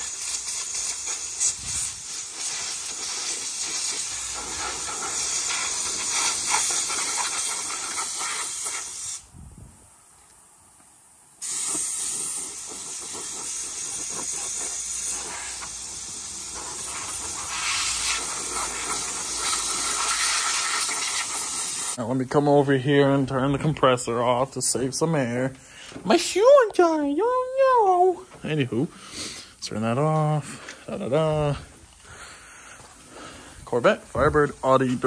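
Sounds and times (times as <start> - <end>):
compressed air blow gun hissing: 0.0 - 9.4, 11.4 - 22.0, 28.9 - 35.0.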